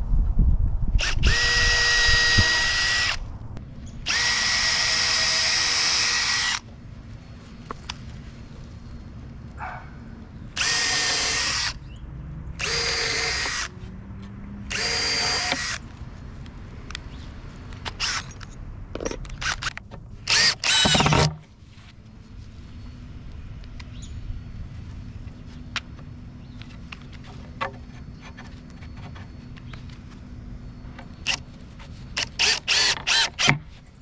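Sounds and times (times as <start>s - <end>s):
power drill whining: 1.0s - 3.2s, 4.1s - 6.6s, 10.6s - 11.8s, 12.6s - 13.7s, 14.7s - 15.8s, 20.3s - 21.3s, 32.2s - 33.5s.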